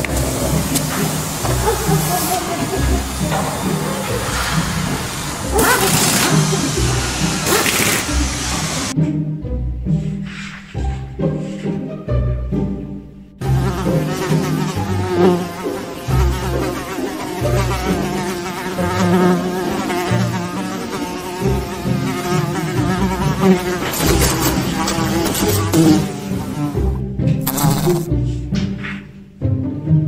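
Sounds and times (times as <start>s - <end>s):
fly buzzing: 0.7s - 8.9s, 13.4s - 28.1s.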